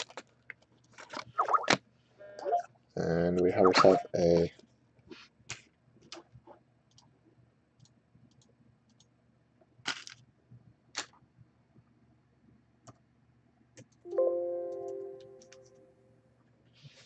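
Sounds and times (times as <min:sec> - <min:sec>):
cards clicking and rustling: 0:09.9 - 0:10.2.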